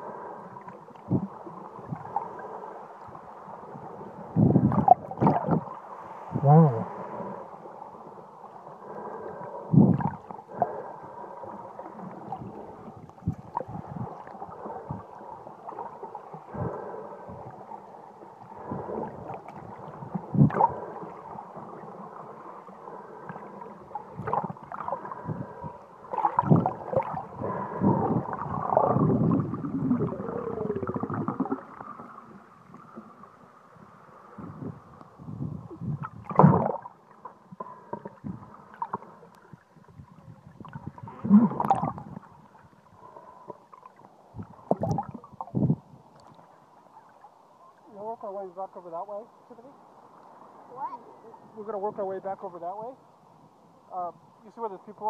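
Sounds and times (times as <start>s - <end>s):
muffled water sloshing and gurgling: 0.0s - 55.0s.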